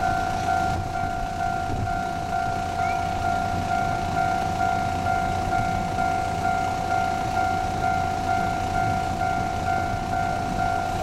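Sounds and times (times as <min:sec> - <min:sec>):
diesel railcar rumble: 0:00.0 - 0:11.0
pulsing electronic warning tone: 0:00.0 - 0:11.0.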